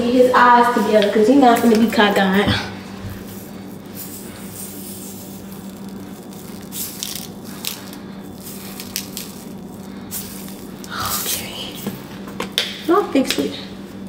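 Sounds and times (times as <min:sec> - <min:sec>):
low steady hum: 0:00.0 - 0:14.0
sprinkles rattling in shaker: 0:03.1 - 0:11.8.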